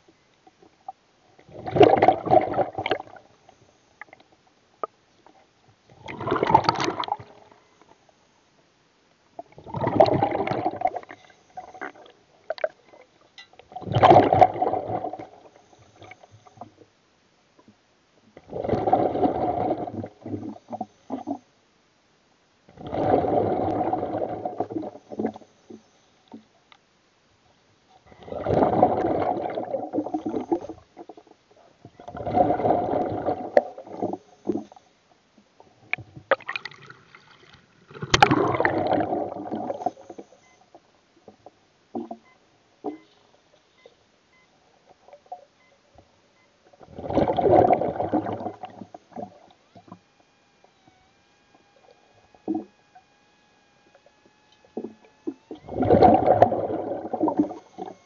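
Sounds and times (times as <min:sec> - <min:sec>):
air bubbling underwater: 0:06.0 - 0:07.3, 0:09.6 - 0:11.1, 0:13.8 - 0:15.3, 0:28.3 - 0:30.7, 0:37.9 - 0:39.8, 0:46.9 - 0:49.3, 0:55.4 - 0:58.0.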